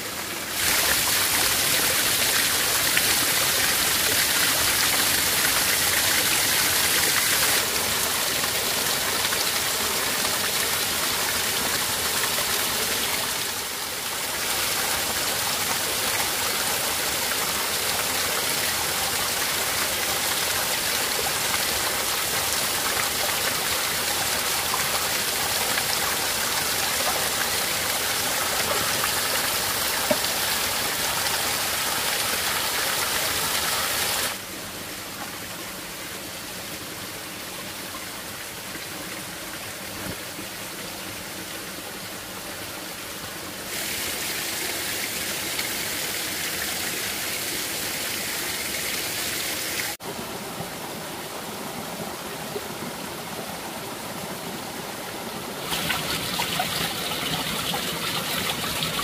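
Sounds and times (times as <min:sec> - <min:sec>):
shallow stream flowing: 0:00.0 - 0:59.0
waterfall splashing onto rocks: 0:00.1 - 0:34.4, 0:43.7 - 0:50.4.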